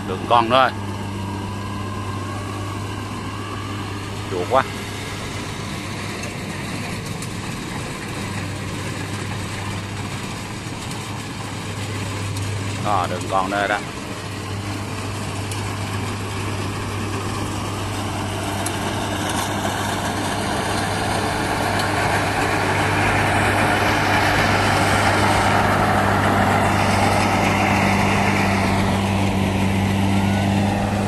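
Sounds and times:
combine harvester engine humming: 0.0 - 31.0.

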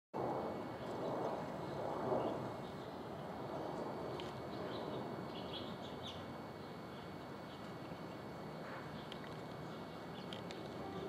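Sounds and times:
bird chirping: 4.5 - 7.7, 8.9 - 11.0.

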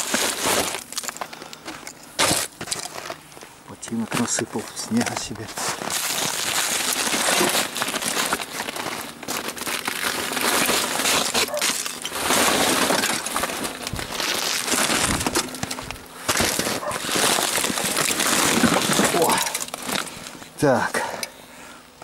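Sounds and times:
snow being broken up: 5.4 - 20.3.

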